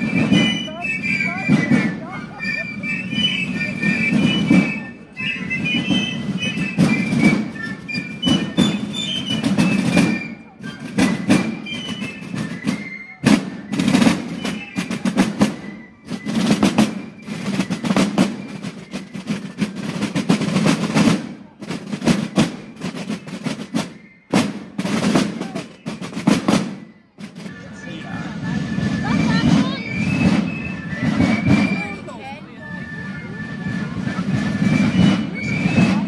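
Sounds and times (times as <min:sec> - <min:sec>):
side drums playing: 0:10.8 - 0:32.1.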